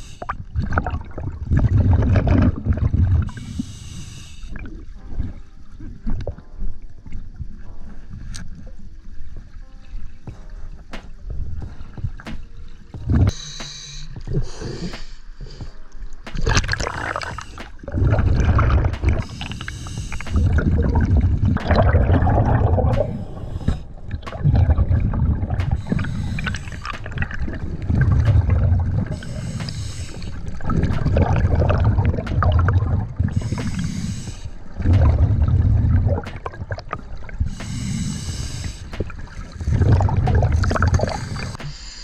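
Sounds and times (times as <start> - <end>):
regulator inhale hiss: 0.0 - 0.4, 3.3 - 4.7, 13.3 - 15.9, 16.9 - 18.0, 19.0 - 20.8, 22.9 - 24.0, 25.7 - 27.5, 28.4 - 30.7, 33.2 - 34.9, 37.4 - 39.4, 40.9 - 42.0
exhaled bubbles rumbling: 0.0 - 3.5, 4.5 - 13.4, 14.1 - 41.6.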